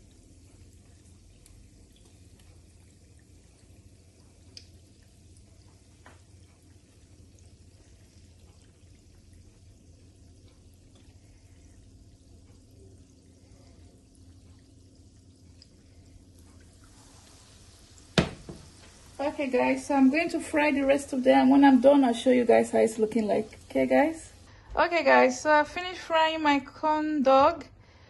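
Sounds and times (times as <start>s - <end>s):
low steady hum: 0.0s - 28.0s
food sizzling in hot oil: 16.7s - 24.5s.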